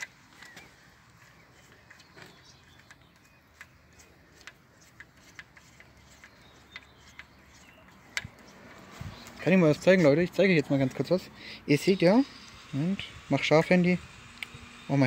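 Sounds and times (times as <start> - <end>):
light clicks of screw fitting: 1.6 - 9.4.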